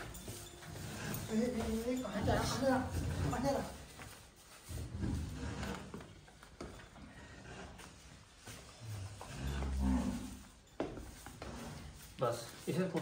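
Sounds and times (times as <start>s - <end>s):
cow mooing: 9.2s - 10.4s.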